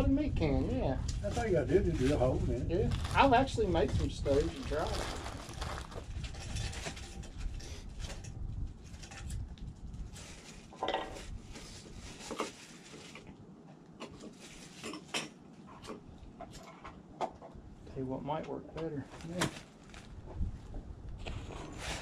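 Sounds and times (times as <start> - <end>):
low rumble: 0.0 - 6.8.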